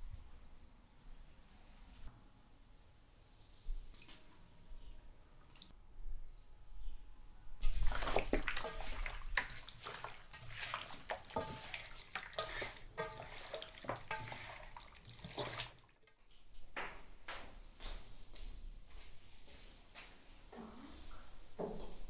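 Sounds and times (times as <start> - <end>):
water splashing and gurgling: 7.6 - 16.1.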